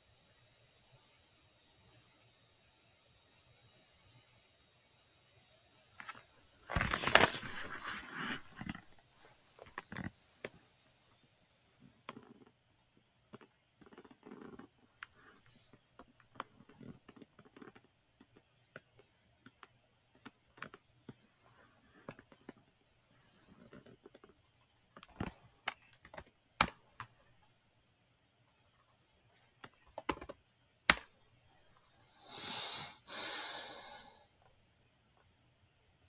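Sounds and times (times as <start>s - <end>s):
computer keyboard clicks: 11.0s - 11.2s, 12.1s - 15.5s, 16.3s - 20.8s, 24.0s - 27.1s, 28.5s - 29.0s, 29.6s - 31.0s
mouse clicks: 28.5s - 29.0s
loud rushes of breath: 32.2s - 34.3s.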